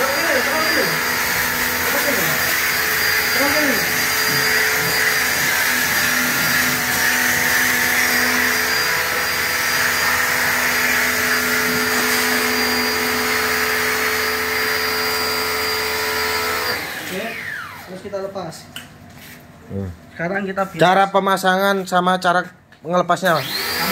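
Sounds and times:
pressure washer motor hum: 0:00.0 - 0:18.1, 0:23.3 - 0:23.9.

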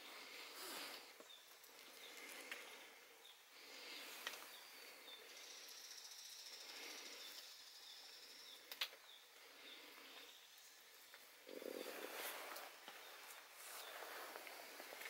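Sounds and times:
soft sharp clicks of branches: 0:04.0 - 0:04.6, 0:08.6 - 0:09.2.

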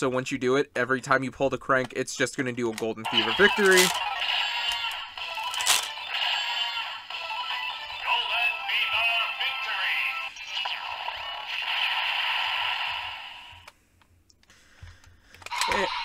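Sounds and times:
synthesized voice call: 0:06.4 - 0:10.8.

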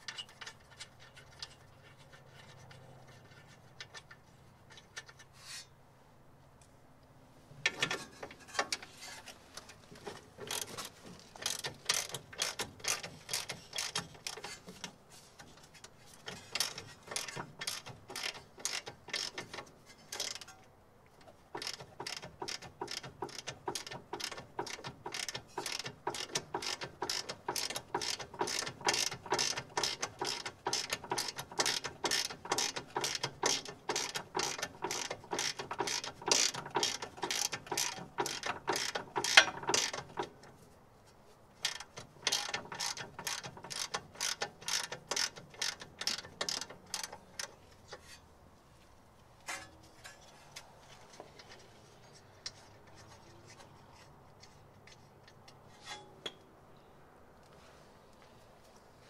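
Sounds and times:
ratcheting wrench clicking: 0:10.0 - 0:14.7, 0:16.2 - 0:20.5, 0:21.5 - 0:40.4, 0:41.6 - 0:48.0.

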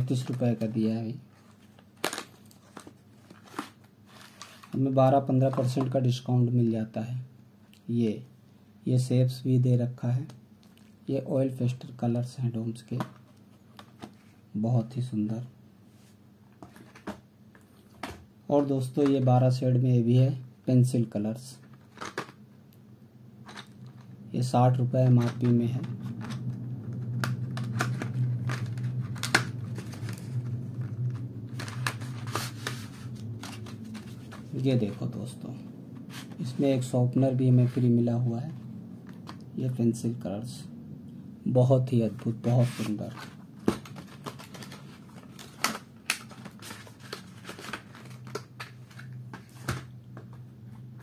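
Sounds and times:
cardboard packaging clicks and crinkles: 0:01.4 - 0:04.8, 0:42.8 - 0:50.4
low hum: 0:21.5 - 0:51.0.

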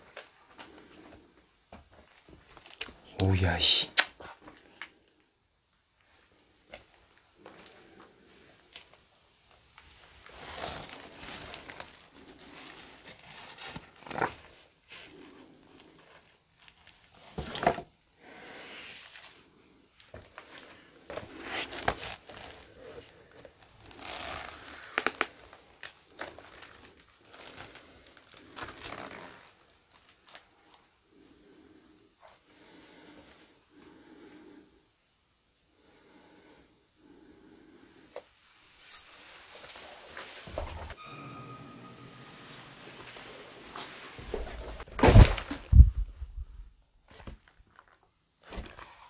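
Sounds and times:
rustling and crinkling: 0:00.0 - 0:03.0, 0:06.4 - 0:17.9, 0:19.0 - 0:30.9, 0:44.3 - 0:49.0.

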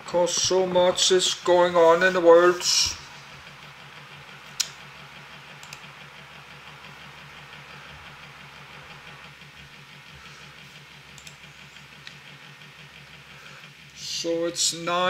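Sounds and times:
steady low hum: 0:00.0 - 0:15.0
computer mouse clicking: 0:05.6 - 0:05.8, 0:11.1 - 0:11.4.

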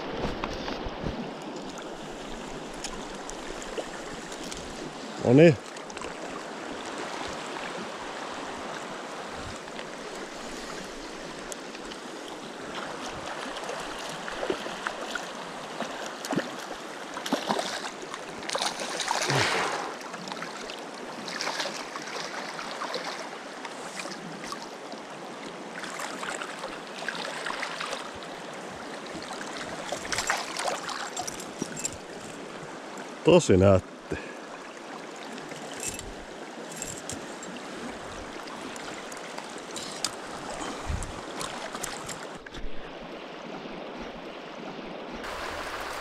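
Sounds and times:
water splashing: 0:12.7 - 0:24.7, 0:29.1 - 0:32.6, 0:34.2 - 0:46.0
river rapids rushing: 0:45.3 - 0:46.0.

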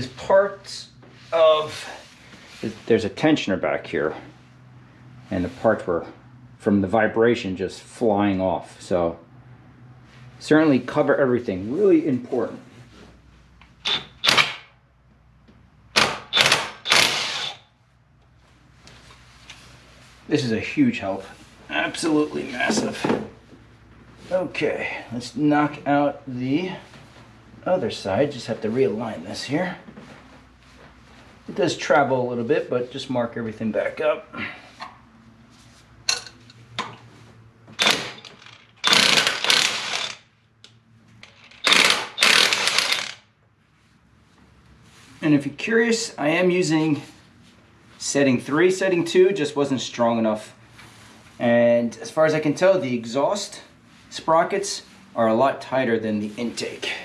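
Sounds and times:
impact wrench hammering: 0:13.8 - 0:14.8, 0:15.9 - 0:17.6, 0:37.8 - 0:40.2, 0:41.3 - 0:43.2.

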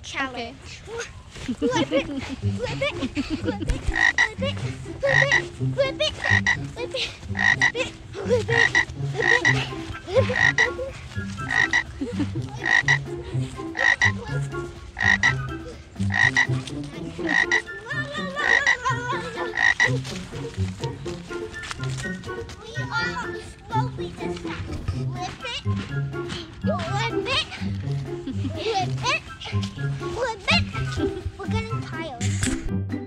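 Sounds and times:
low rhythmic pulse: 0:00.0 - 0:33.0
frog croaking: 0:03.9 - 0:04.4, 0:05.0 - 0:05.5, 0:06.2 - 0:06.6, 0:07.3 - 0:07.8, 0:08.5 - 0:09.6, 0:10.3 - 0:10.7, 0:11.4 - 0:11.9, 0:12.6 - 0:13.0, 0:13.8 - 0:14.2, 0:15.0 - 0:15.4, 0:16.0 - 0:16.6, 0:17.3 - 0:17.7, 0:18.4 - 0:18.8, 0:19.4 - 0:19.9.

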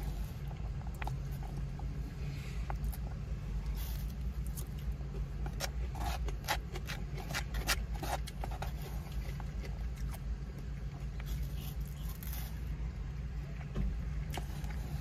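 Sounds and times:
chewing: 0:00.0 - 0:01.9, 0:02.6 - 0:12.6
low car cabin rumble: 0:00.0 - 0:15.0
plastic fork scraping foam box: 0:05.4 - 0:09.7.

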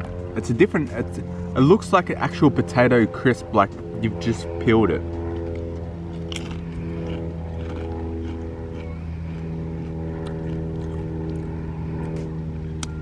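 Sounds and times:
engine droning: 0:00.0 - 0:13.0
potato chip crunching: 0:05.4 - 0:12.2.

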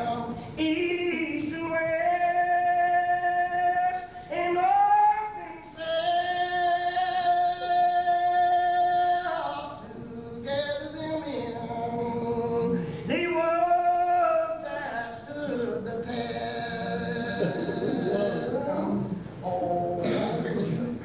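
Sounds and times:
congregation singing a hymn: 0:00.0 - 0:20.9.

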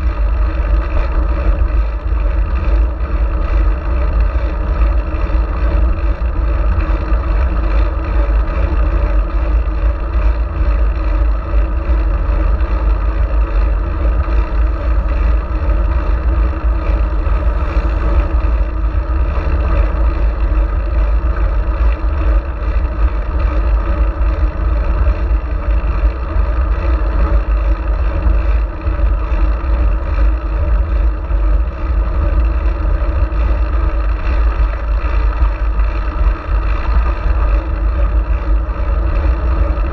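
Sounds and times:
wind buffeting: 0:00.0 - 0:39.9
road noise: 0:10.6 - 0:24.9.

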